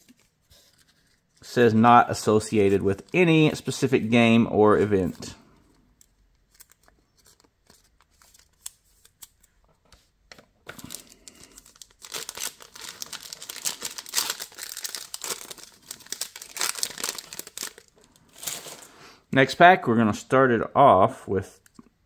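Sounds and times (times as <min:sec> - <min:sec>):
foil pack crinkling and tearing: 0:06.4 - 0:09.4, 0:10.7 - 0:18.9.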